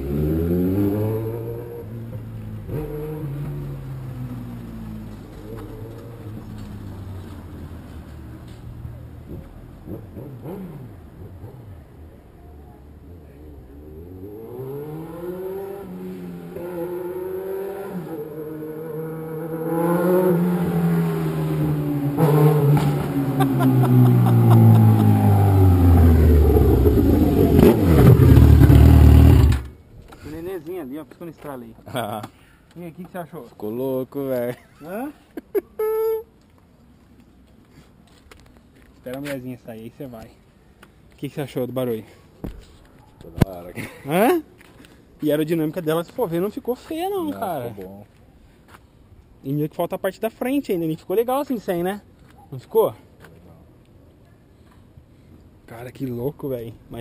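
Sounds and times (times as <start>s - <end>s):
motorcycle engine pulling away: 13.7s - 29.8s
sharp exhaust crack: 22.2s - 29.8s.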